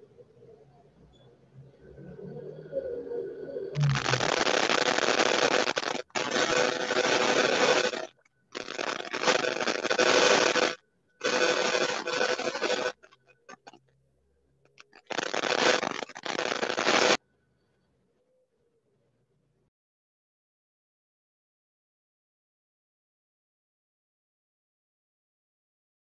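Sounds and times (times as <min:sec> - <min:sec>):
harsh rasping noise bursts: 0:03.8 - 0:13.8, 0:14.8 - 0:17.2.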